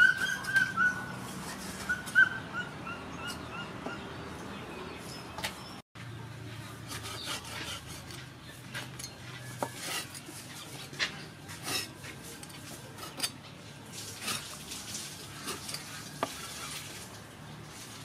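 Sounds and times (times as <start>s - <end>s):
cleaver knocking and scraping: 6.8s - 13.4s, 15.4s - 16.9s.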